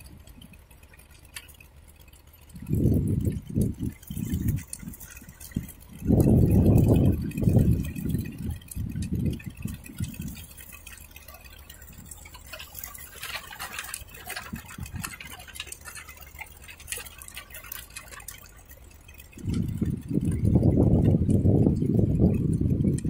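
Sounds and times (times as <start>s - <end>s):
tiller crackling and ticking: 0.0s - 23.0s.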